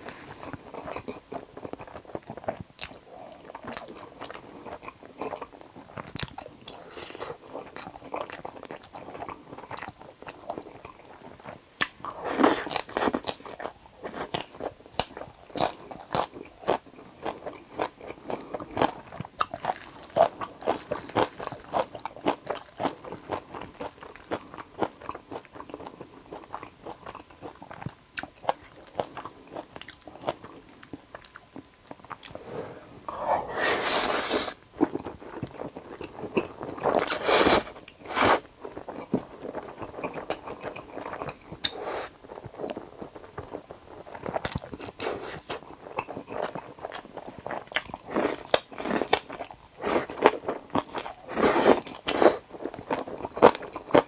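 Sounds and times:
wet chewing and mouth clicks: 0:00.5 - 0:32.4, 0:34.8 - 0:54.0
slurping noodles: 0:32.3 - 0:34.6, 0:51.2 - 0:52.4.

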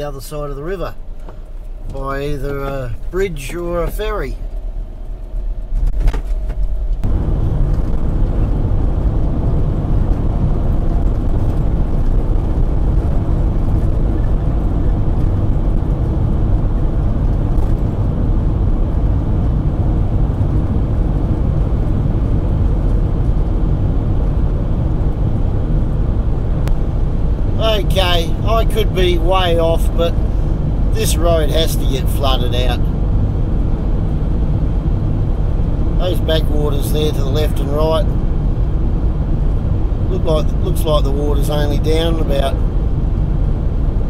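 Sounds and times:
car tyres and engine rumbling: 0:00.0 - 0:44.0.

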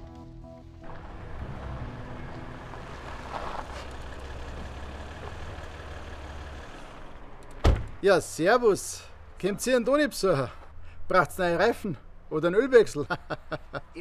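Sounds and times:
background music: 0:00.0 - 0:03.4
vehicle engine rumbling: 0:00.8 - 0:09.6.

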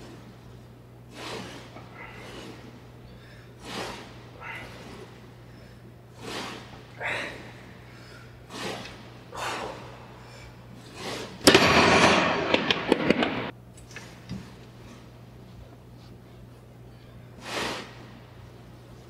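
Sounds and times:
man breathing hard: 0:01.0 - 0:11.5, 0:16.8 - 0:18.2.

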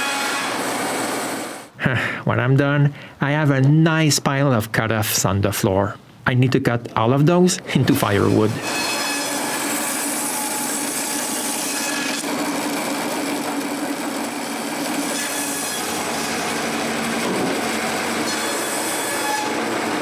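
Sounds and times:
bandsaw whirring: 0:00.0 - 0:01.7, 0:08.0 - 0:20.0.

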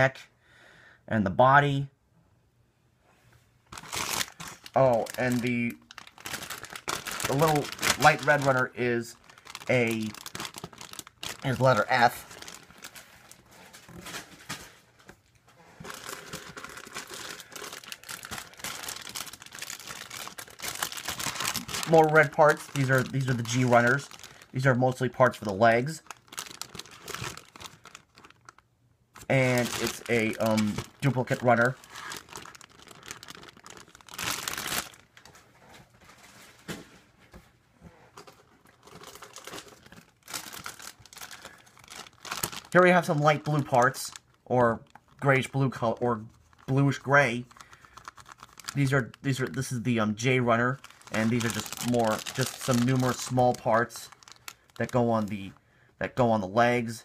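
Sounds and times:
plastic bag crinkling: 0:03.7 - 0:36.8, 0:38.2 - 0:55.6.

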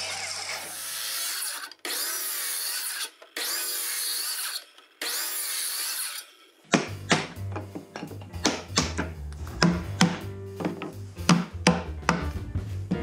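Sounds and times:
circular saw cutting timber: 0:00.0 - 0:06.6.

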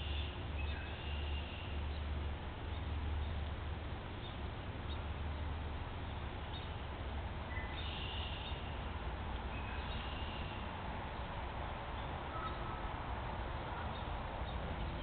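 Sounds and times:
outdoor ambience hiss and rumble: 0:00.0 - 0:15.0
faint bird chirps: 0:12.3 - 0:12.9.

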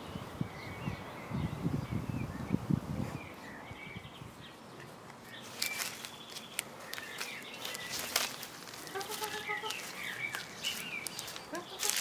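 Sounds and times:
sharp rustles and clicks: 0:04.8 - 0:12.0.

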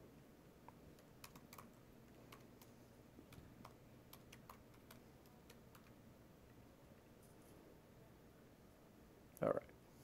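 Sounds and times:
faint laptop keyboard typing: 0:00.6 - 0:06.0.

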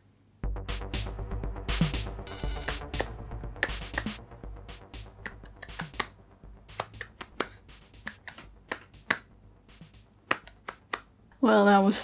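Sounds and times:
hands slapping together: 0:02.7 - 0:04.2, 0:05.2 - 0:11.1.

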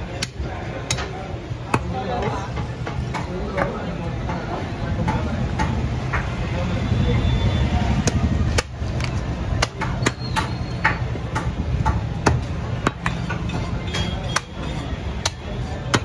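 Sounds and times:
cleaver chopping on wooden block: 0:08.0 - 0:16.0.

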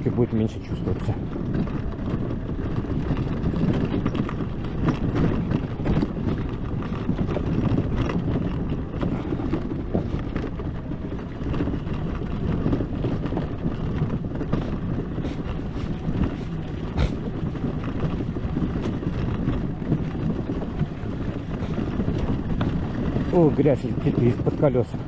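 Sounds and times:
suspension knocks and rattles: 0:00.0 - 0:25.0
tyre and road noise: 0:00.0 - 0:25.0
wind buffeting microphone: 0:00.0 - 0:25.0.

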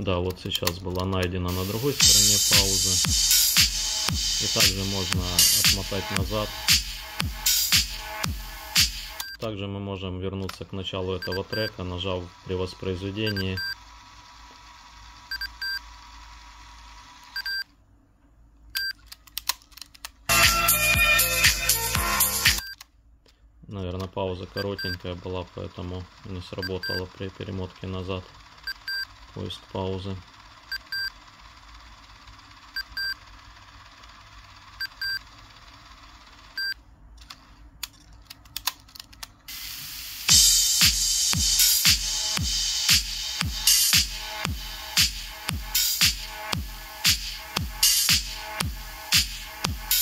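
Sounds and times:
cassette tape winding: 0:00.3 - 0:09.3
music from tape: 0:01.5 - 0:09.2, 0:20.3 - 0:22.6, 0:40.3 - 0:50.0
short electronic beeps: 0:13.3 - 0:13.8.

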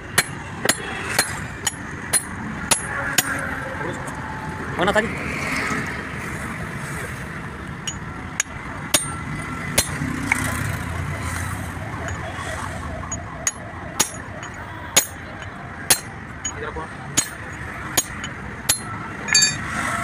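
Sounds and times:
hammer striking steel: 0:00.1 - 0:03.5, 0:07.8 - 0:10.4, 0:13.1 - 0:19.8.

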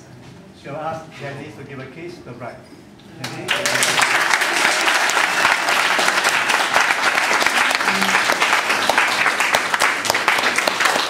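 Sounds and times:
crowd applauding: 0:03.2 - 0:11.0.

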